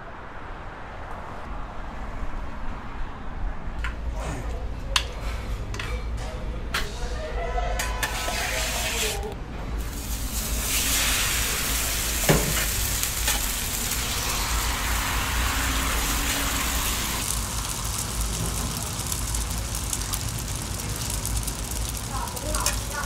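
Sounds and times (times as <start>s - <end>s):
metal scrapers on steel plate: 7.8s - 9.3s
egg sizzling on griddle: 9.8s - 23.0s.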